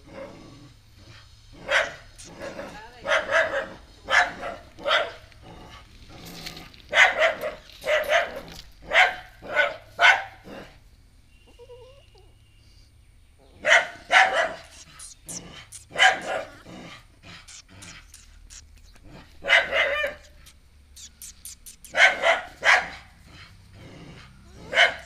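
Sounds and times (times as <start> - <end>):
dog barking: 1.6 - 5.2, 6.9 - 10.8, 13.6 - 16.6, 19.4 - 20.5, 21.2 - 23.2, 24.6 - 25.0.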